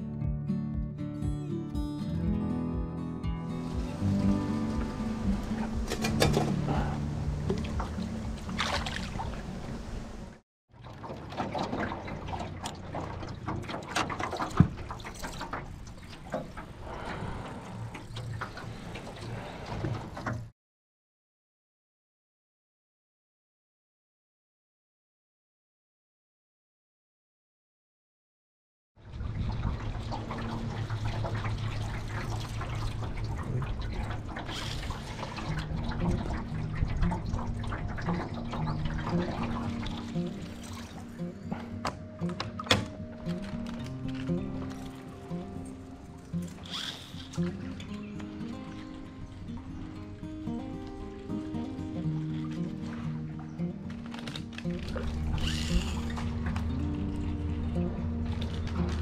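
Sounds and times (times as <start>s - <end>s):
background music: 0.0s - 10.4s, 35.1s - 59.0s
water sloshing and splashing: 3.6s - 20.5s, 29.0s - 59.0s.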